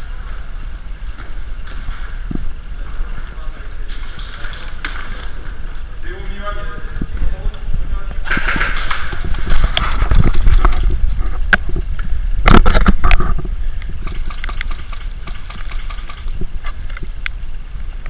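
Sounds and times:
wind buffeting microphone: 6.6s - 17.2s
sharp cracks: 8.2s - 11.7s, 12.4s - 17.4s.

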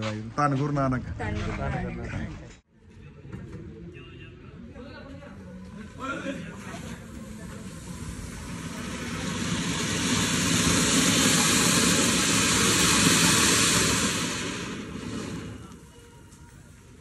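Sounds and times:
firework fountain hissing: 5.9s - 17.0s.

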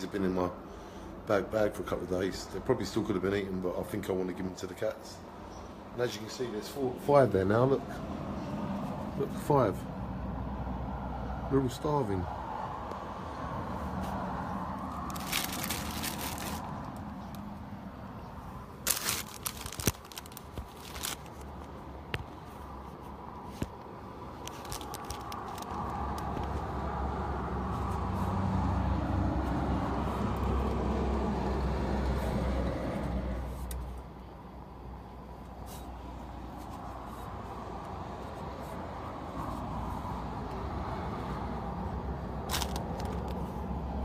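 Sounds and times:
vehicle engine rumble: 5.2s - 44.0s
plastic packet crinkling and tearing: 14.8s - 17.4s, 18.8s - 21.7s, 24.4s - 26.6s, 42.4s - 43.4s.

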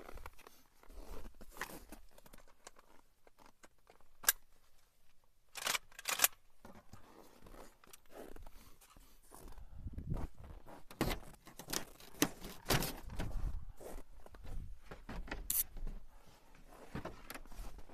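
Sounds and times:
rough crunching and scraping: 0.0s - 4.0s, 5.6s - 15.9s
sharp click: 15.5s - 15.7s.

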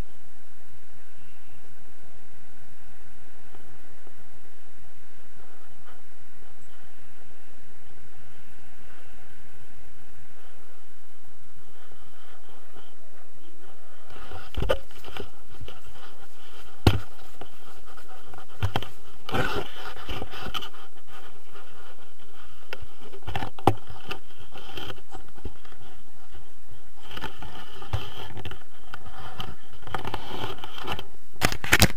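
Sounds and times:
fabric and harness gear rustling: 10.3s - 31.1s.

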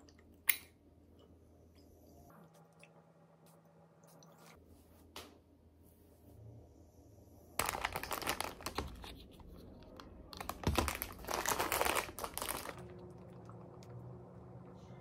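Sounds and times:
paper bag crinkling: 7.6s - 13.0s.

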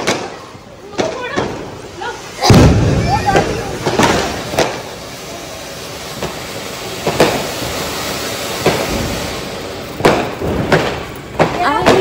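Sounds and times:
firecracker cracks: 0.0s - 12.0s
firework hissing: 0.0s - 12.0s.

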